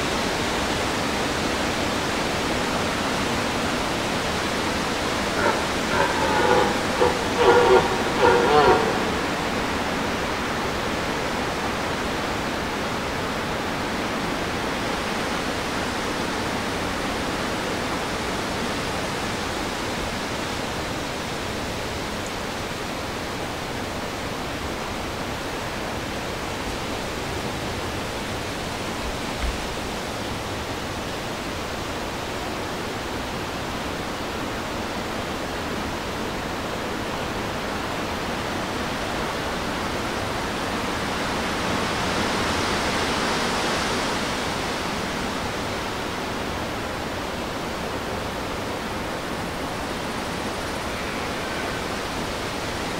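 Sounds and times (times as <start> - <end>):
steady rushing noise: 5.2 - 10.0.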